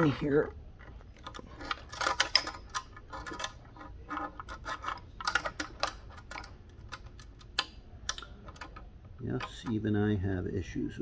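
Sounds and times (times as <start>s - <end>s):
small metal and plastic clicks: 1.1s - 9.8s.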